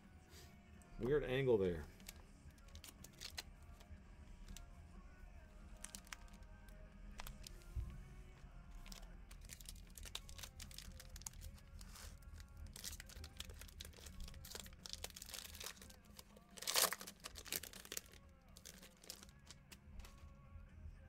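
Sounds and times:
foil pack crinkling: 1.9 - 3.5, 5.8 - 6.4, 7.2 - 7.6, 8.8 - 20.2
foil pack ripping: 2.0 - 3.4, 5.8 - 6.4, 8.8 - 20.2.

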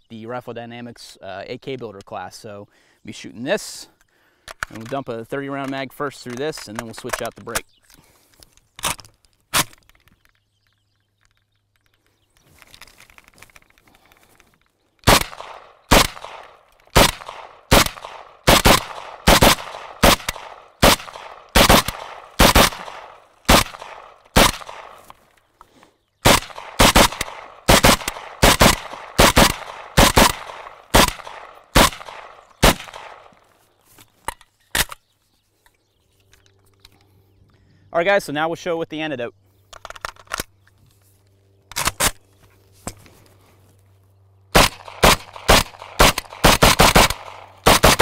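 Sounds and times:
magazine removal clicks: 4.4 - 12.0, 39.7 - 40.8
rifle shots: 15.0 - 25.1, 26.2 - 33.4, 44.5 - 48.0.

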